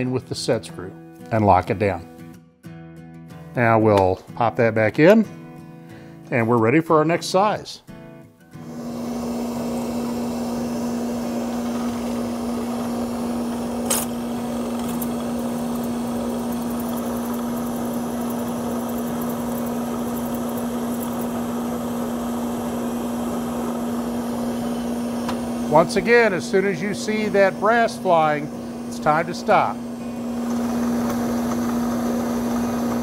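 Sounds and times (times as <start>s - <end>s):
drill press humming: 8.6s - 33.0s
pen mill trimming acrylic: 8.6s - 33.0s.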